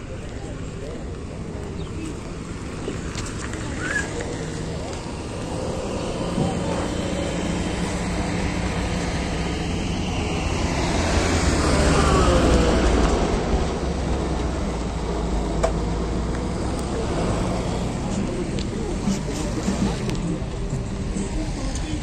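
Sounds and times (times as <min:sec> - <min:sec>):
vehicles driving past: 0:00.0 - 0:22.0.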